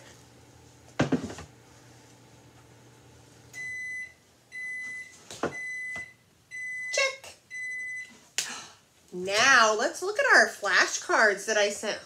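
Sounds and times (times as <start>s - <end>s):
high electronic appliance beep: 3.6s - 8.1s.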